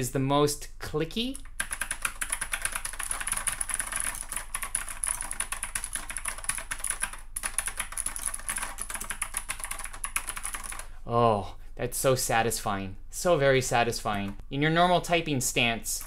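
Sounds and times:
mechanical keyboard typing: 0:01.4 - 0:10.9.

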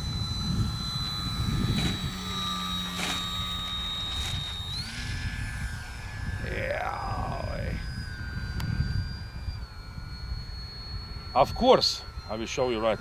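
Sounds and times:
electric motor and propeller whining: 0:00.0 - 0:13.0
wind rumble on microphone: 0:00.0 - 0:13.0.

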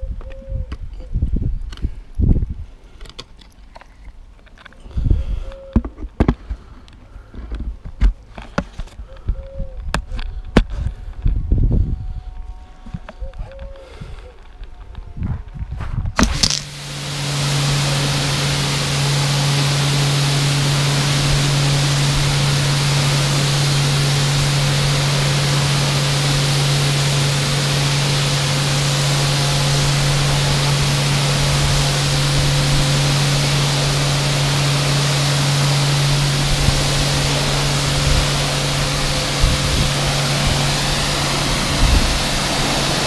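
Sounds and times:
hissing foam spray: 0:16.2 - 0:43.0
pressure washer humming: 0:16.2 - 0:43.0.

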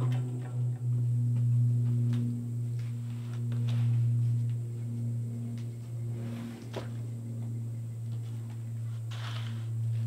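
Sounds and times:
bandsaw mill engine humming: 0:00.0 - 0:10.0.

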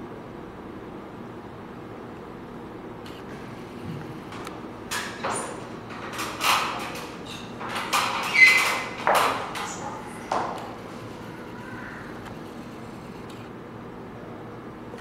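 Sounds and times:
metal stepladder knocks and taps: 0:04.3 - 0:10.8.

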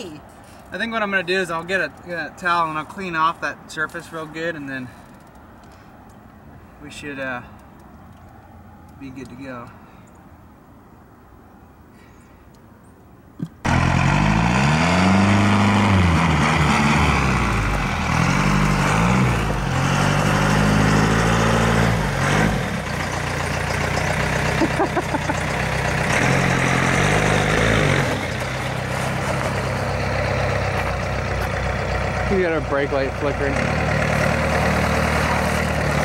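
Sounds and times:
pickup truck engine running: 0:13.7 - 0:36.0.

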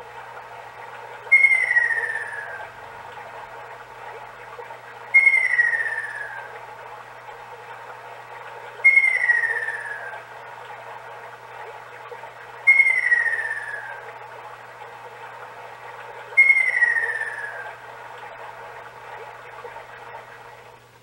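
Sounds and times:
recorded babbling stream hiss: 0:00.0 - 0:21.0
recorded bird calls from speaker: 0:01.2 - 0:02.8, 0:05.1 - 0:06.5, 0:08.8 - 0:10.3, 0:12.6 - 0:14.1, 0:16.3 - 0:17.8.

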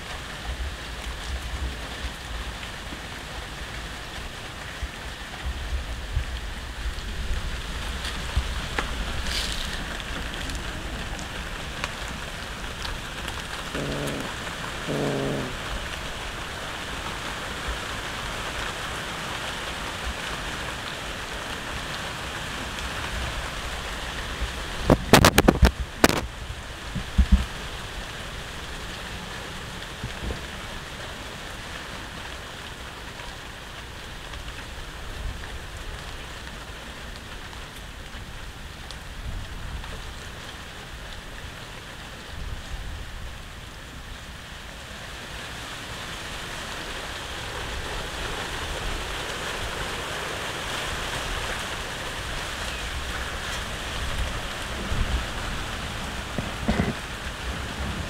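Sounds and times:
steady hiss: 0:02.2 - 0:21.5.

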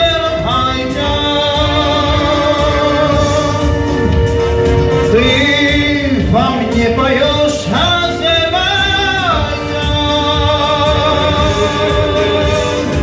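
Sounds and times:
man singing into a microphone: 0:00.0 - 0:04.2, 0:05.0 - 0:13.0
amplified instrumental backing: 0:00.0 - 0:13.0.

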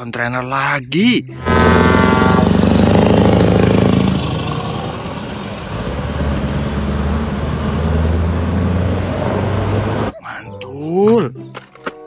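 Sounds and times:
truck diesel engine droning: 0:01.3 - 0:10.1.

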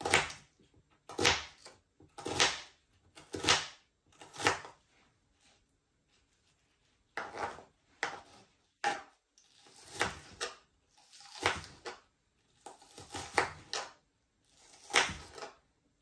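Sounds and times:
knife chopping onion on plastic board: 0:00.0 - 0:04.8, 0:07.2 - 0:15.6.

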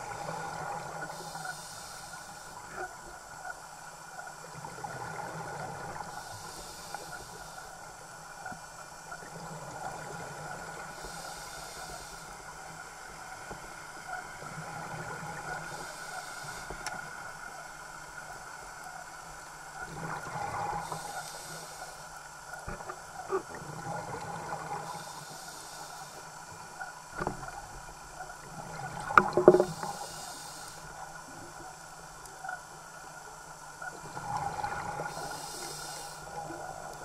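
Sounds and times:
regulator inhalation hiss: 0:01.0 - 0:02.6, 0:06.1 - 0:07.8, 0:11.0 - 0:12.5, 0:15.6 - 0:16.8, 0:20.8 - 0:22.1, 0:24.8 - 0:26.3, 0:29.6 - 0:31.0, 0:35.0 - 0:36.5.

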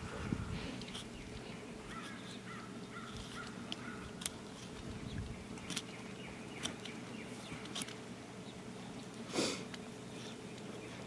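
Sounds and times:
low steady hum: 0:00.0 - 0:11.0
faint bird calls: 0:00.3 - 0:04.3.

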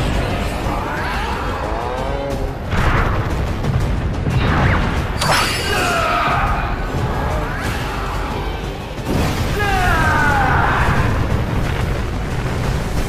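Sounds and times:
monster roaring: 0:00.5 - 0:02.6.

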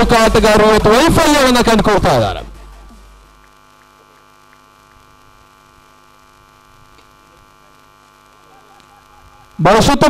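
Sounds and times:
electrical mains hum: 0:00.0 - 0:10.0
faint ticks: 0:03.3 - 0:06.2, 0:06.9 - 0:09.6.

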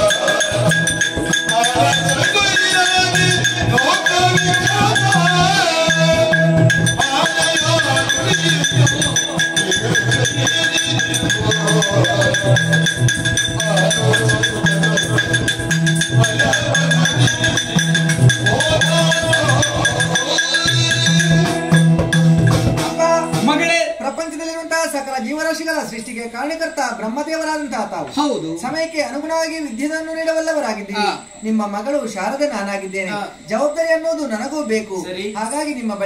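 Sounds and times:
small cymbals or bells jingling: 0:00.0 - 0:22.5
hand drum beating: 0:00.0 - 0:23.0
wandering melody: 0:00.0 - 0:23.3.

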